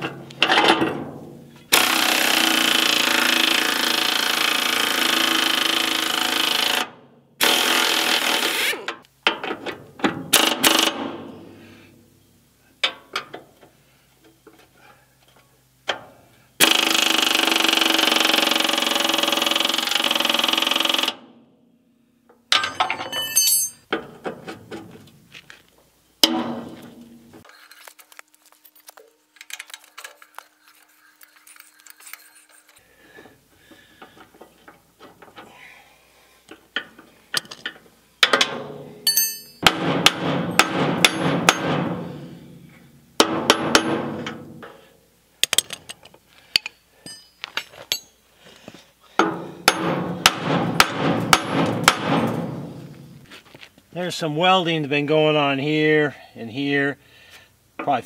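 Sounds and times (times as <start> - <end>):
impact driver on rusted bolts: 0.0 - 11.6, 15.9 - 21.3, 36.5 - 48.2, 49.2 - 53.2
metal clinks and knocks: 22.3 - 25.0, 36.6 - 39.7, 45.4 - 48.3.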